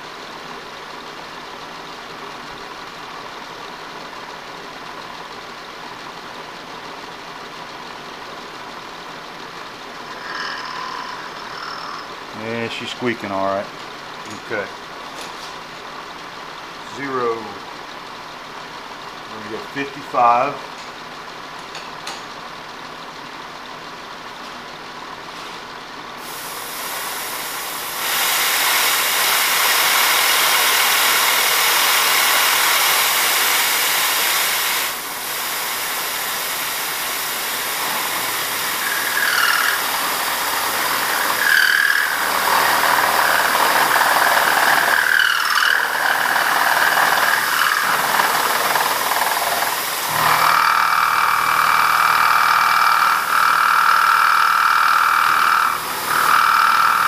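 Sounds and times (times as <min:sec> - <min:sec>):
high-pitched cutter squeal: 0:10.1 - 0:12.1, 0:37.8 - 0:57.0
milling machine cutting steel: 0:27.7 - 0:57.0.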